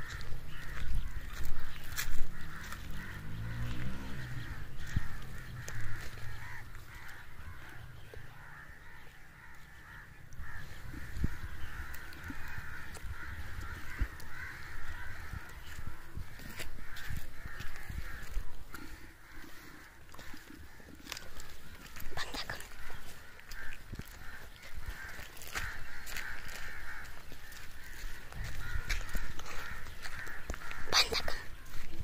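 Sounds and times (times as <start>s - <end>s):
birds calling: 0.0s - 32.0s
crows cawing: 0.0s - 32.0s
low rumble: 0.6s - 8.8s.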